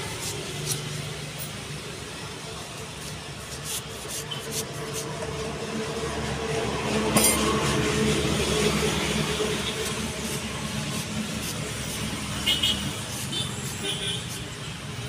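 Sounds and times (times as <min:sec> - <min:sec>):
tire rubber clicking and scraping: 0:09.2 - 0:14.6.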